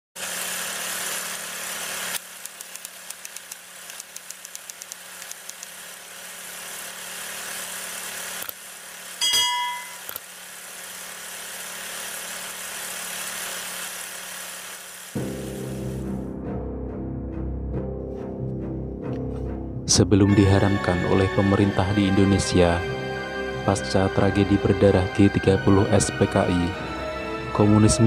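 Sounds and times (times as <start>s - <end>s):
quick projector clicks: 2.1s - 5.8s
notification bell chime: 9.2s - 10.0s.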